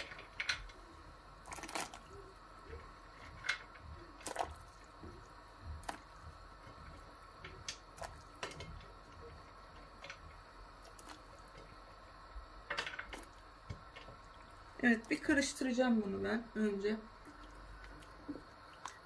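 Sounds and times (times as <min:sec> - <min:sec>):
pasta dropped into boiling water: 0:01.4 - 0:02.0, 0:12.6 - 0:14.3.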